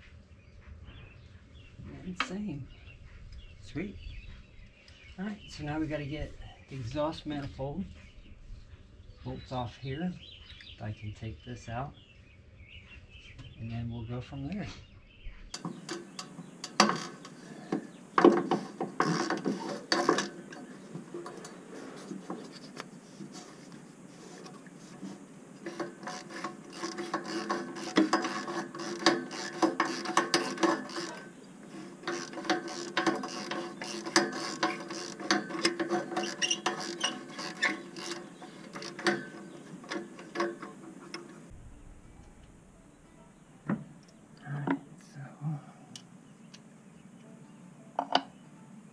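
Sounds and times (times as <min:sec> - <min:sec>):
wrench ratcheting: 0:25.6 - 0:41.4.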